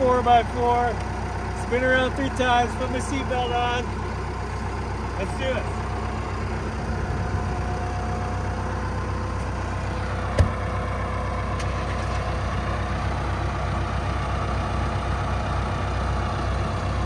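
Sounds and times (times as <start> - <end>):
engine idling: 0.0 - 17.0
car door shutting: 10.3 - 10.6.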